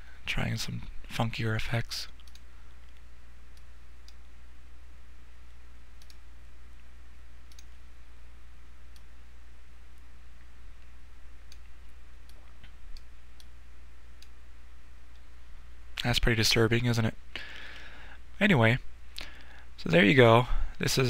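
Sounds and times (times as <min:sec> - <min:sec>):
low electrical hum: 0:00.0 - 0:21.0
computer mouse clicks: 0:02.2 - 0:04.2, 0:06.0 - 0:06.2, 0:07.4 - 0:07.8.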